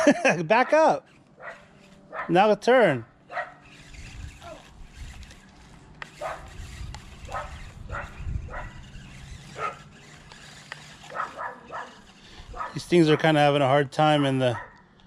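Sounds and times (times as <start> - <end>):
dog barking: 1.4 - 2.4, 3.3 - 3.6, 11.1 - 12.0, 12.6 - 12.8, 14.2 - 14.8.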